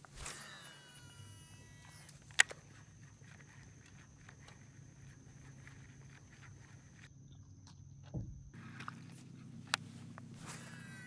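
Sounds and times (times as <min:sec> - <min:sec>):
fishing reel spool whine: 0:00.0 - 0:07.1, 0:08.5 - 0:11.0
reel ticking: 0:00.0 - 0:07.1
low steady hum: 0:00.0 - 0:11.0.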